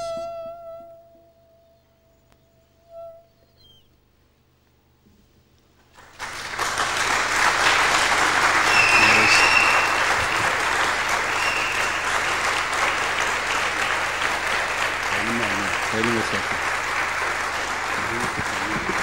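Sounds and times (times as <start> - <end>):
audience applauding: 5.9 - 19.0.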